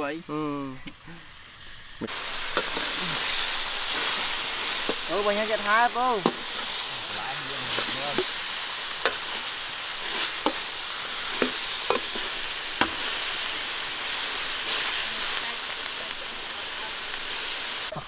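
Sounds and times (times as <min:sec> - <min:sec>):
beef sizzling in hot fat: 0:00.0 - 0:18.0
metal spatula scraping a wok: 0:02.4 - 0:15.4.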